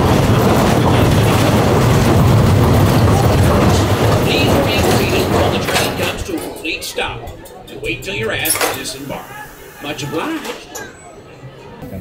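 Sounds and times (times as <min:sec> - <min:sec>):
roller coaster wheels rumbling: 0:00.0 - 0:11.0.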